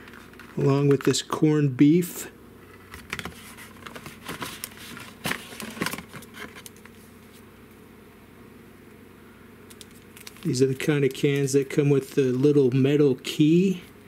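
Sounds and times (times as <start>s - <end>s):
cardboard carton rustling: 2.9s - 7.1s.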